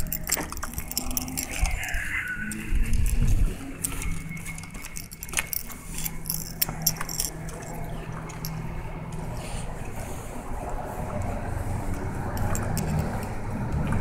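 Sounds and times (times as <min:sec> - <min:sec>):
small metal objects jingling: 0:00.0 - 0:08.9, 0:12.3 - 0:13.4
steady low hum: 0:00.0 - 0:14.0.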